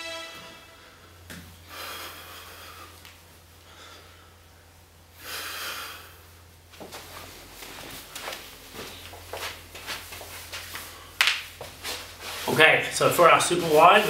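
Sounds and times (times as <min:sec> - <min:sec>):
steady low hum: 0:00.0 - 0:14.0
soft taps and shuffles on carpet: 0:06.7 - 0:10.9.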